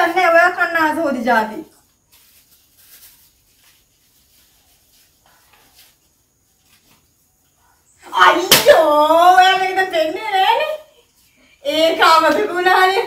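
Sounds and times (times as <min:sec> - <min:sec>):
paper and plastic bags rustling: 0:01.8 - 0:07.4.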